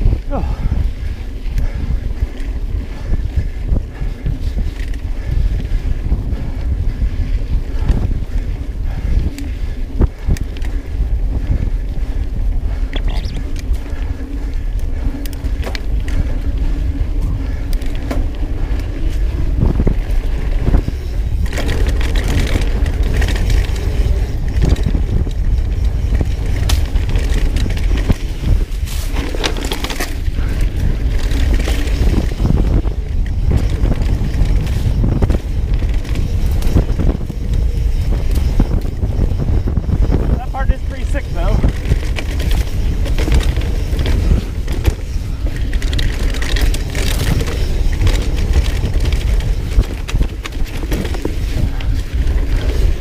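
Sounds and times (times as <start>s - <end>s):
bike knocking and rattling: 0.0s - 53.0s
wind buffeting microphone: 0.0s - 53.0s.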